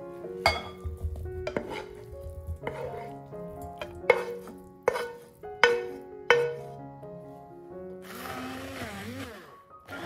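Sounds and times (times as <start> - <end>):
background music: 0.0 - 10.0
metal pan scraping glass bowl: 1.5 - 6.7.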